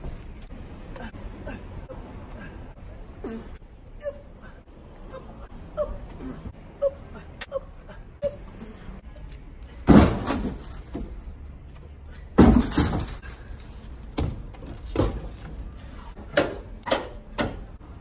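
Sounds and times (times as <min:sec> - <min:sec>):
logs thudding into truck bed: 0:09.8 - 0:11.2, 0:12.4 - 0:13.3, 0:14.1 - 0:15.5.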